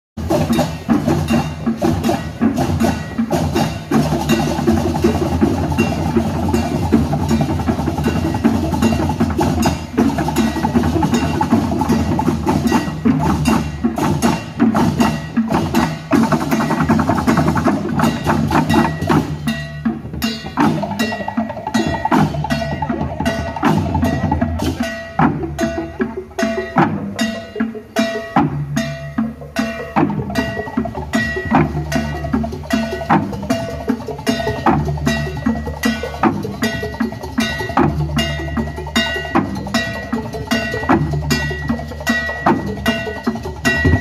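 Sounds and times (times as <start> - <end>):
gamelan music: 0.2 - 44.0.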